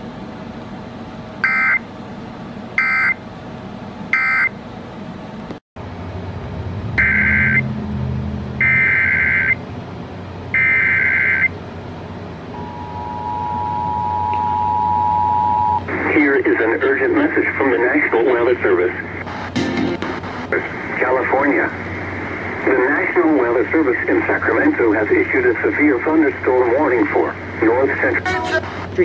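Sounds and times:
two-tone attention signal: 7.0 - 7.7, 12.6 - 15.8
data bursts from radio: 18.9 - 21.2, 27.8 - 29.0.

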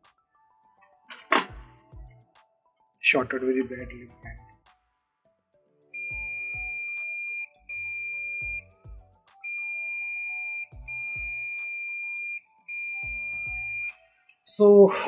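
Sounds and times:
multimeter continuity beeper: 6.0 - 8.8, 9.5 - 14.0.

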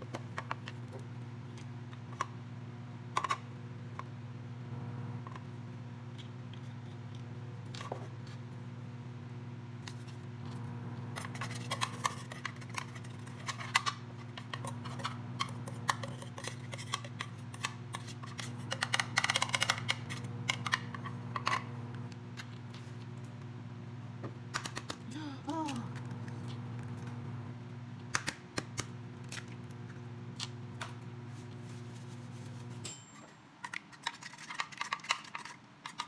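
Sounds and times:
electric fan humming: 0.0 - 33.6
utensil scraping a dish: 11.2 - 19.4.

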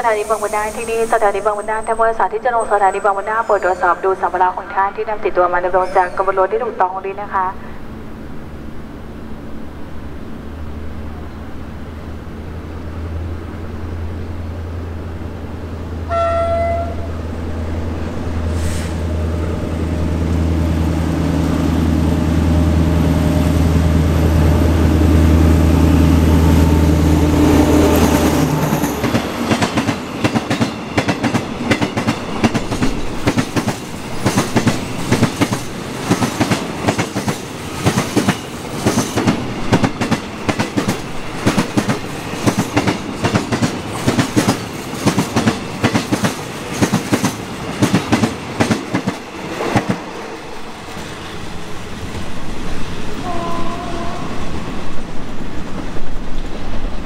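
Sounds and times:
locomotive engine drone: 0.0 - 31.6
train horn blast: 16.1 - 17.2, 53.2 - 54.6.

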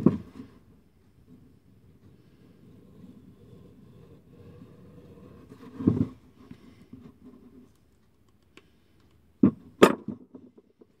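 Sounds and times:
light clicks and rubbing: 6.9 - 9.3.

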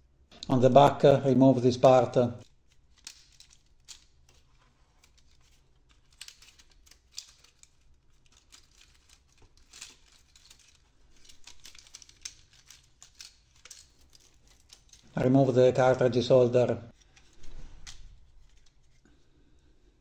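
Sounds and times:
plastic parts clicking: 2.4 - 15.2, 16.9 - 19.1
plastic parts rustling: 2.4 - 16.0, 16.9 - 19.6.

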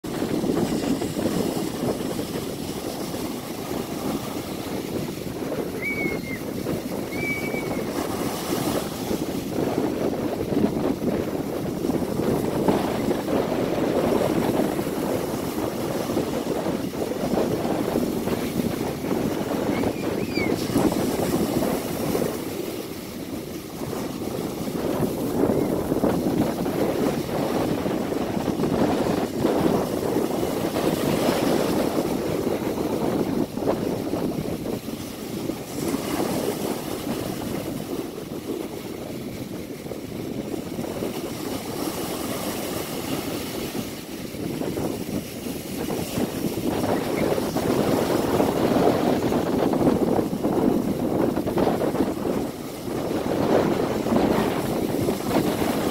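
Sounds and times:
ocean surf on beach: 0.0 - 55.9
faint high chirps: 5.8 - 6.4.

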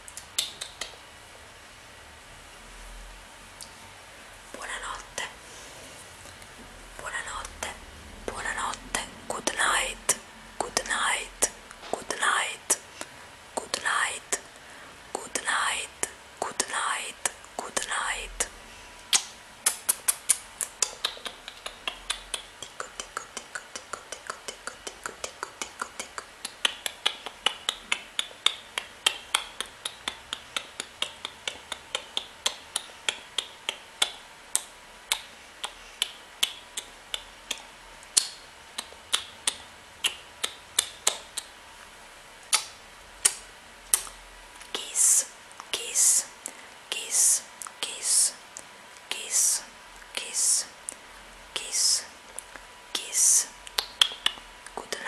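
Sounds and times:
kiss and lip-smack clicks: 0.1 - 1.0, 19.1 - 41.6, 42.4 - 46.2, 51.6 - 54.8.

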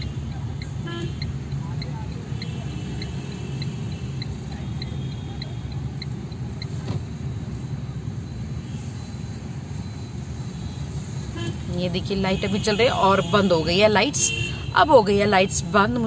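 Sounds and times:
turn indicator ticking: 0.0 - 7.2
car engine and tyre rumble: 0.0 - 16.0.

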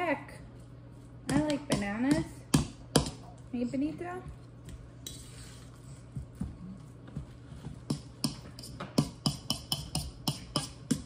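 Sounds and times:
utensil tapping against bowl: 1.3 - 3.2, 7.8 - 11.0.

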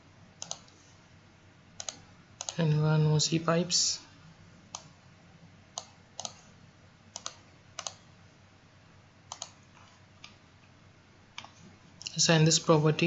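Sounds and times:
faint steady hiss: 0.0 - 13.0
computer mouse clicking: 0.4 - 0.8, 1.8 - 2.6, 5.8 - 6.4, 7.1 - 8.0, 9.3 - 10.4.

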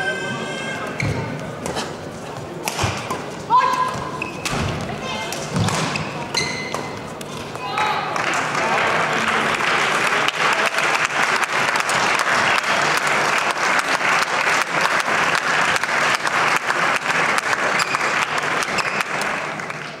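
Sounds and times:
crowd applauding: 7.7 - 20.0.

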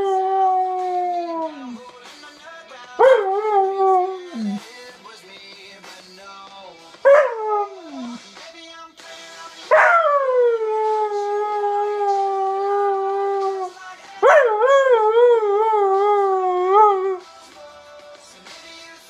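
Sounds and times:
husky howling: 0.0 - 1.8, 3.0 - 4.6, 7.1 - 8.2, 9.8 - 17.2
faint pop song: 0.0 - 19.0.

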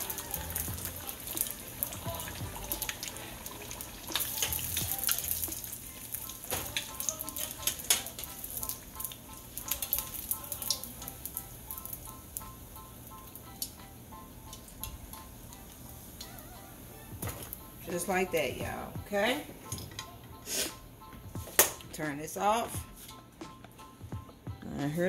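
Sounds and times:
food deep-frying in hot oil: 0.0 - 17.6.

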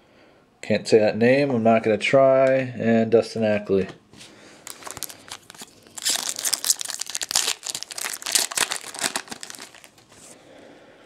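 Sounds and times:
foil wrapper crinkling: 4.6 - 10.4.

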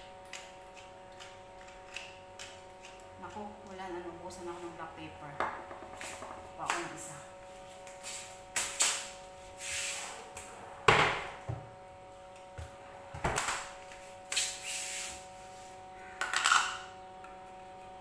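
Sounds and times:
steady hum: 0.0 - 18.0.

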